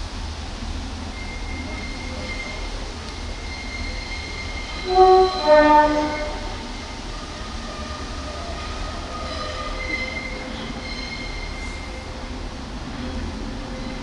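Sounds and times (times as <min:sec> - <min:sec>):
wheel squeal: 0:01.2 - 0:07.0, 0:09.1 - 0:12.0
two-tone train horn: 0:04.7 - 0:06.7.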